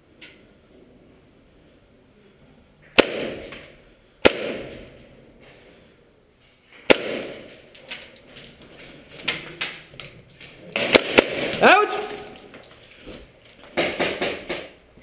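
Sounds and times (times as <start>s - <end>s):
sharp bangs echoing off concrete: 2.9s - 5.0s, 6.8s - 7.8s, 10.6s - 12.7s, 13.6s - 14.8s.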